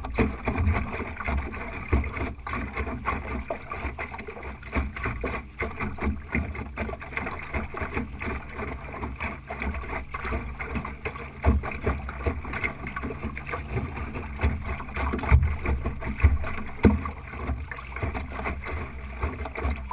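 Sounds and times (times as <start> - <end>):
water splashing against boat hull: 0.0 - 19.9
small irregular knocks: 13.1 - 19.9.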